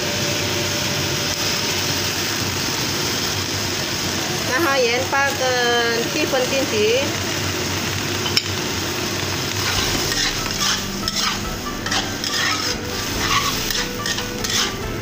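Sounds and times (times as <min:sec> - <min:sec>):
food sizzling in a pan: 0:00.0 - 0:15.0
spatula scraping pan: 0:09.6 - 0:15.0
spatula stirring: 0:09.6 - 0:15.0.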